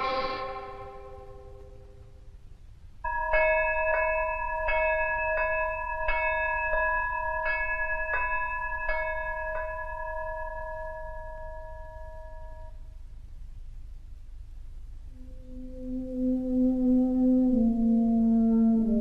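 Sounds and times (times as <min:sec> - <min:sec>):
bell ringing: 0:03.1 - 0:12.8.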